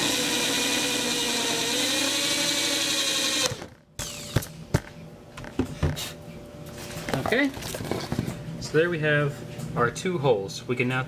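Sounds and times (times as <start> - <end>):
electric drill whining: 0.0 - 4.5.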